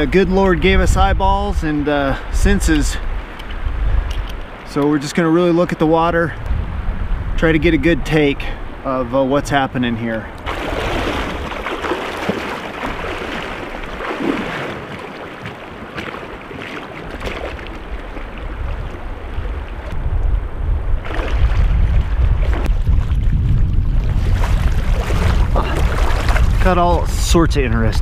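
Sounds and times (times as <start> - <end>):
wind buffeting microphone: 0.0 - 4.7, 5.8 - 28.0
river water rushing: 10.3 - 20.0.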